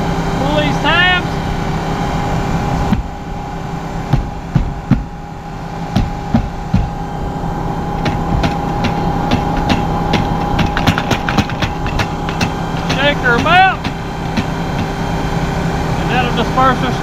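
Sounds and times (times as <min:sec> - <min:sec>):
engine idling: 0:00.0 - 0:17.0
knocks and clicks from handling gear: 0:08.0 - 0:15.0.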